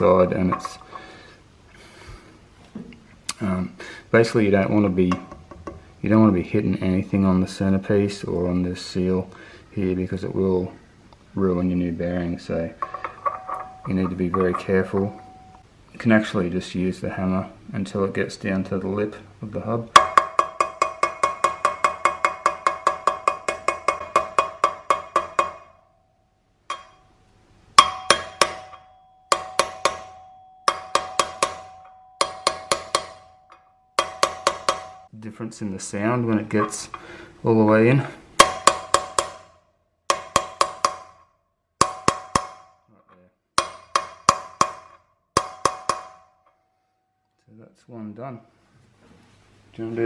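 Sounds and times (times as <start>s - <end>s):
hammer tapping metal ringing: 0.0s - 1.2s, 5.0s - 5.9s, 12.8s - 15.6s, 20.0s - 26.0s, 26.7s - 35.1s, 36.4s - 37.0s, 38.4s - 42.9s, 43.6s - 46.6s.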